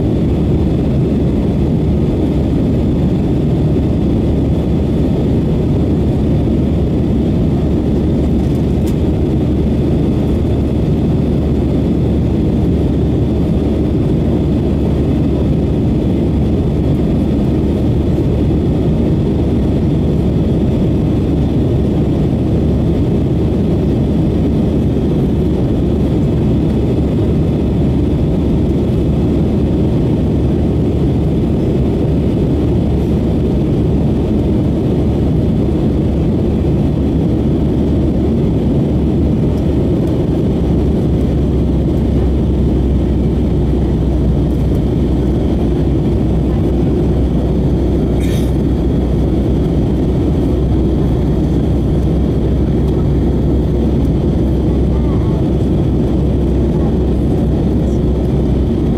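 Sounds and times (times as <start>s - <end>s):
jet engine and airflow rumble: 0.0s - 58.9s.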